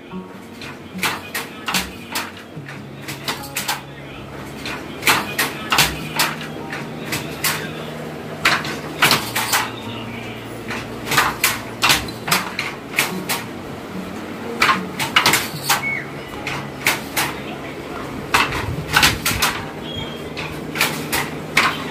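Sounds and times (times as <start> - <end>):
low steady hum: 0.0 - 21.9
wooden loom clacks: 4.6 - 7.7, 8.4 - 9.7, 10.7 - 13.4, 14.6 - 17.4, 18.3 - 19.7, 20.4 - 21.9.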